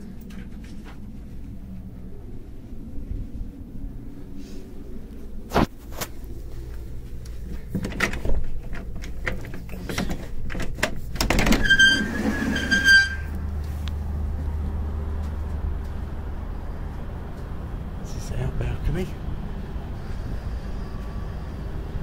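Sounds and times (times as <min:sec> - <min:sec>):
low rumble: 0:00.0 - 0:05.5
sliding door knocks and clacks: 0:10.5 - 0:12.8
door squeaking on track: 0:11.3 - 0:13.4.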